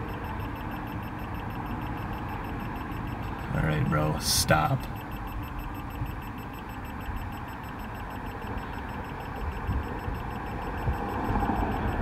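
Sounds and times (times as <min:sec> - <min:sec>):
freeway traffic rumble: 0:00.0 - 0:12.0.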